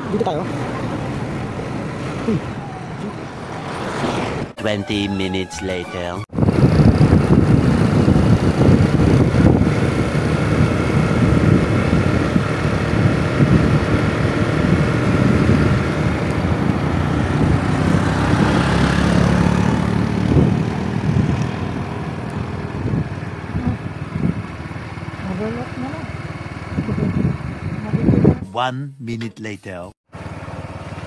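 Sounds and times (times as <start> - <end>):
wind rush on microphone: 6.3 - 24.6, 26.6 - 28.5
motorcycle engine drone: 6.3 - 28.8, 30.1 - 31.0.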